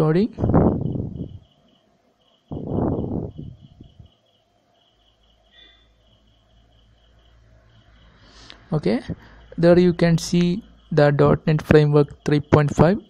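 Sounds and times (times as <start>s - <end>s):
cricket chirping: 0.2s - 13.0s.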